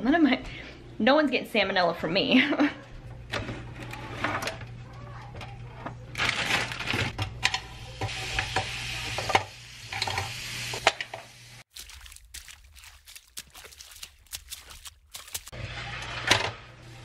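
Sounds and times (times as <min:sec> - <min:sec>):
meat sizzling on a grill: 0:07.6 - 0:11.6
plastic bag rustling: 0:11.7 - 0:15.6.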